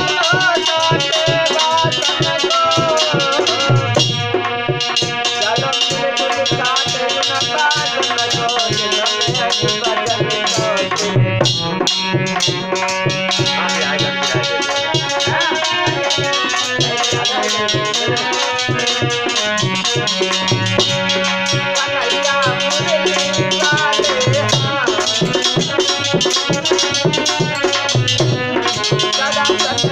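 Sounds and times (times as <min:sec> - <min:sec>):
hand drum beat: 0:00.0 - 0:29.9
rattling percussion: 0:00.0 - 0:29.9
wavering melody: 0:00.0 - 0:29.9
sustained held chords: 0:09.6 - 0:29.9.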